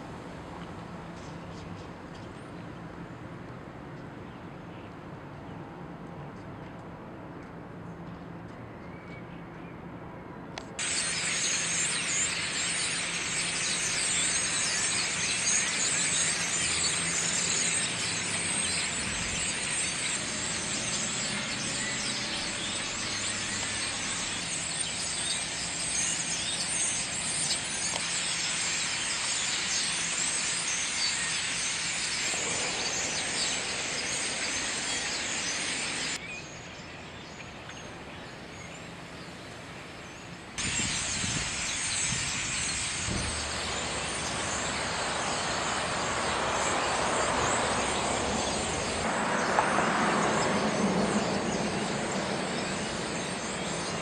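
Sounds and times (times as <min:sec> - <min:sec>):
street traffic: 0:00.0 - 0:54.0
flock of birds chattering: 0:10.8 - 0:36.2, 0:40.2 - 0:54.0.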